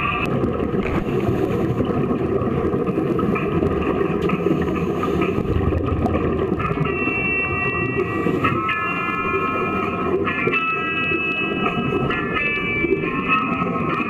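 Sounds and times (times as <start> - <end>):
muffled underwater rumble: 0.0 - 14.0
regulator exhaust bubbling: 5.2 - 7.2.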